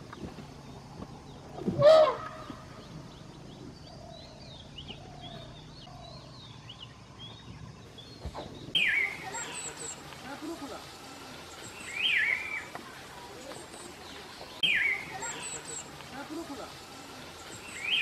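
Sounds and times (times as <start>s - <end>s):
loud animal call: 1.7s - 2.6s
small birds chirping: 2.3s - 18.0s.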